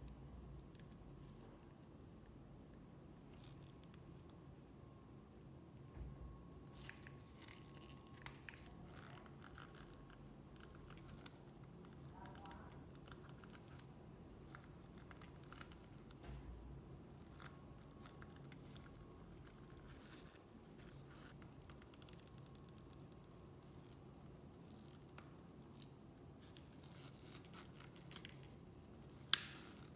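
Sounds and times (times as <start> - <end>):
low steady hum: 0.0 - 29.9.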